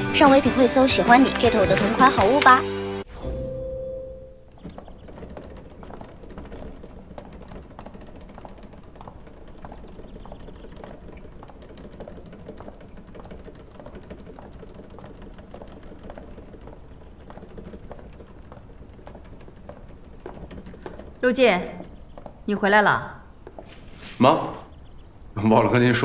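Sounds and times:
footsteps on hard floor: 0:04.4 - 0:24.7.

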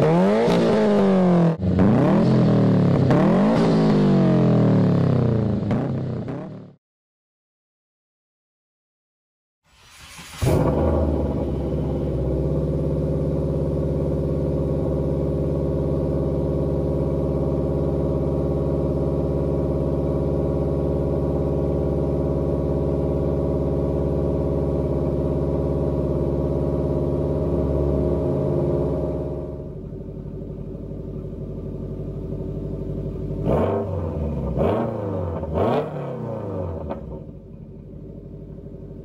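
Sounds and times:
car engine idling: 0:09.9 - 0:39.0.

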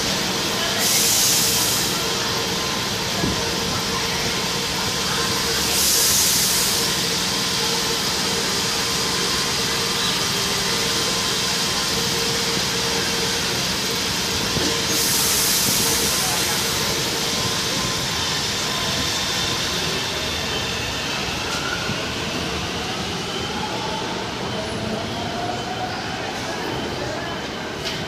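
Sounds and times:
train electric hum: 0:00.0 - 0:28.0
compressed air hiss: 0:00.8 - 0:01.9.

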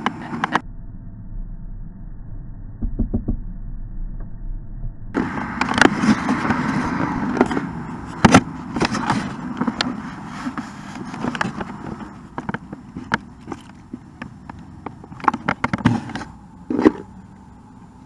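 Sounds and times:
low hum: 0:00.0 - 0:10.6
camera handling knocks and rubbing: 0:05.5 - 0:17.1.

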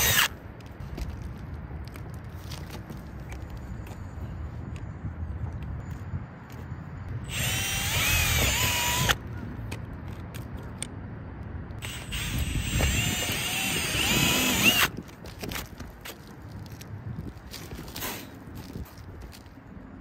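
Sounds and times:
cordless drill whining: 0:00.0 - 0:00.3, 0:07.3 - 0:09.2, 0:11.8 - 0:14.9.

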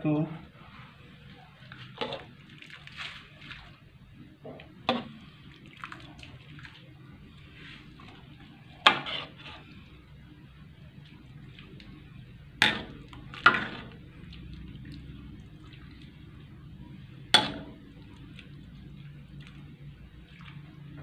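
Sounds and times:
broth sloshing: 0:00.6 - 0:21.0.

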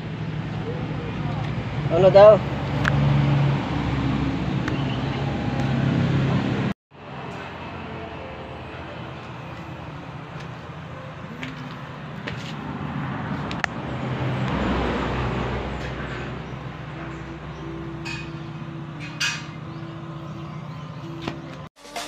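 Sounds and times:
engine idling: 0:00.0 - 0:03.0.

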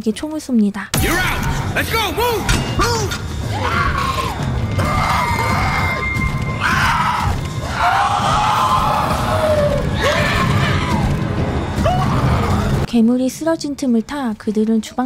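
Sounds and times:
tense horror score: 0:01.0 - 0:13.4
shrill screams: 0:03.5 - 0:11.2.

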